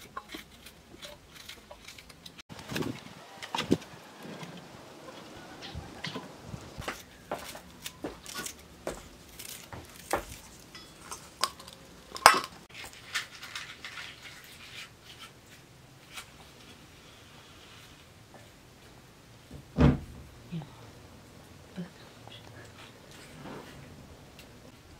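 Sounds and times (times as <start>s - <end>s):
knife cutting pepper: 0.0s - 2.3s.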